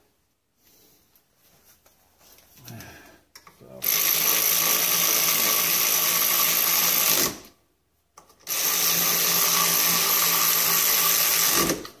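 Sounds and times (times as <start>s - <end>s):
electric ratchet motor whining: 8.5s - 11.9s.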